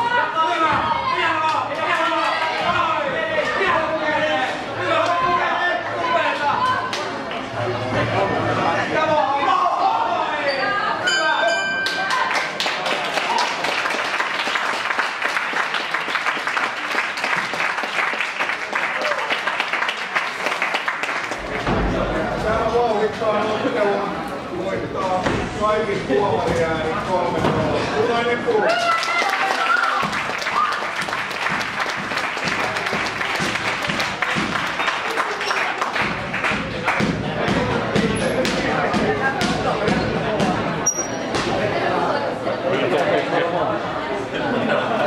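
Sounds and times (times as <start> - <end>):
crowd applauding: 11.8 - 21.6, 28.7 - 37.4.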